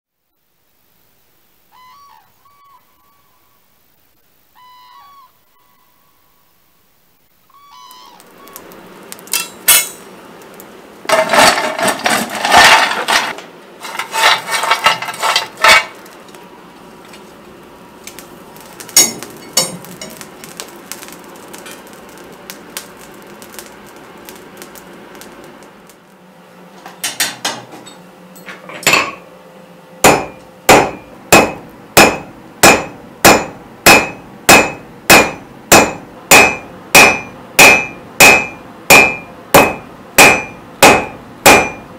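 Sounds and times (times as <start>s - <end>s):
metal tools clinking: 9.3s - 10.0s, 11.1s - 15.9s, 27.0s - 29.2s
hammer ringing on anvil: 9.4s - 10.0s, 19.0s - 20.2s, 30.0s - 41.9s.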